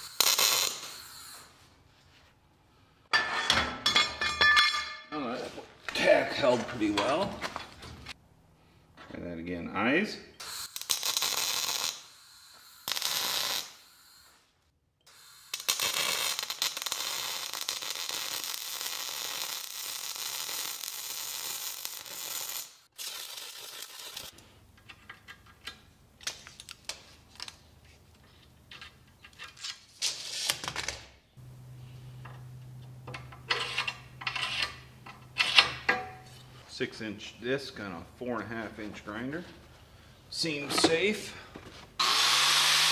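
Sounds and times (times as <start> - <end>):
welder arc crackling: 0.0 - 1.5, 10.4 - 14.4, 15.1 - 24.3
steel plate clinking on workbench: 3.1 - 5.1.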